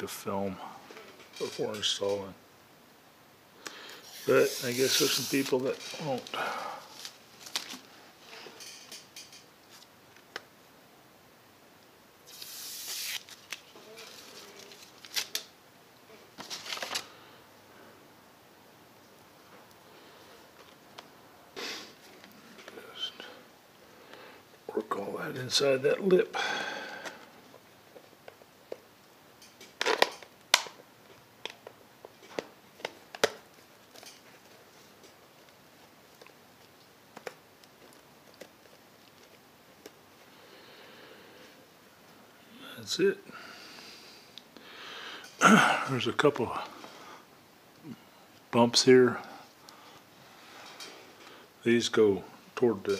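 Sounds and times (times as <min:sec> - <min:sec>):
film peeling off lens: 0:04.0 - 0:06.3, 0:12.3 - 0:15.5
plastic and paper rustling: 0:04.0 - 0:07.9, 0:12.4 - 0:15.5, 0:16.4 - 0:17.2.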